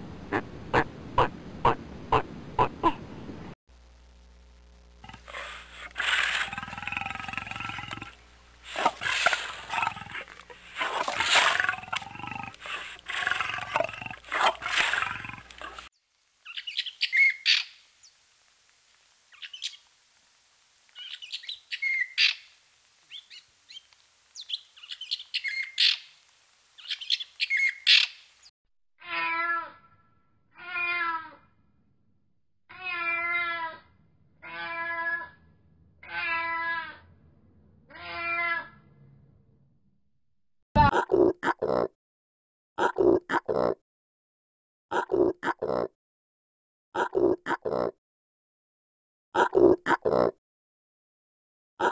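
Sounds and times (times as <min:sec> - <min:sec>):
cat meowing: 0:29.0 - 0:29.8, 0:30.6 - 0:31.4, 0:32.7 - 0:33.8, 0:34.4 - 0:35.4, 0:36.0 - 0:37.0, 0:37.9 - 0:38.8.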